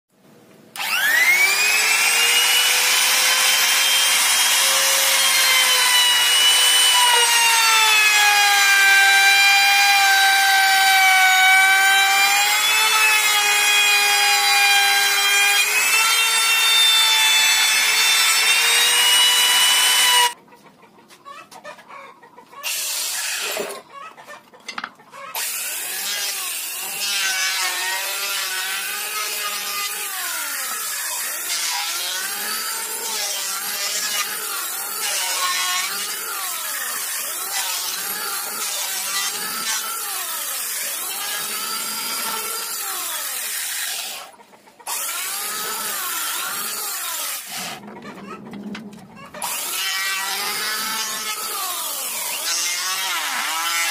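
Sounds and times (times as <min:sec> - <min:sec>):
electric hand planer running: 0:00.8 - 0:20.4
router whining and cutting wood: 0:00.8 - 0:20.4, 0:25.3 - 0:53.9.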